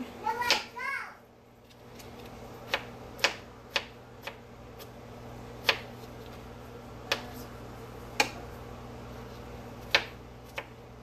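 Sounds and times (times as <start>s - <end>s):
knife chopping on plastic cutting mat: 2.0s - 4.9s, 5.6s - 6.4s, 7.0s - 7.5s, 8.1s - 8.4s, 9.8s - 10.8s.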